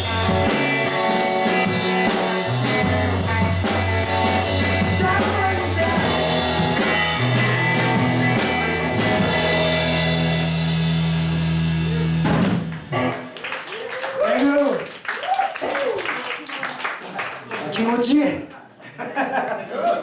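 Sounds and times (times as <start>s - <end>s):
live rock band playing: 0.0s - 14.0s.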